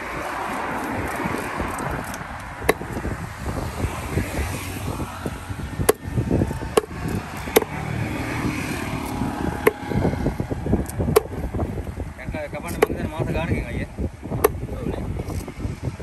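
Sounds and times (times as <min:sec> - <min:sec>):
low rumble: 0:00.0 - 0:16.0
knife chopping fish on a block: 0:05.8 - 0:07.9, 0:09.2 - 0:09.9.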